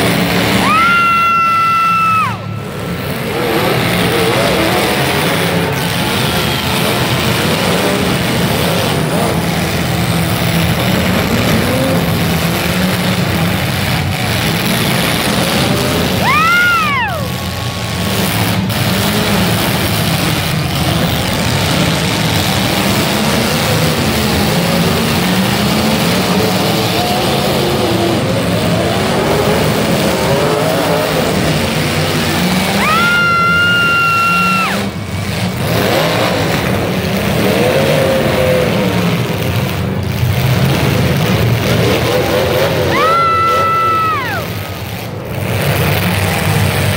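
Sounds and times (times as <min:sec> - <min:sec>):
car engines running and revving: 0:00.0 - 0:46.9.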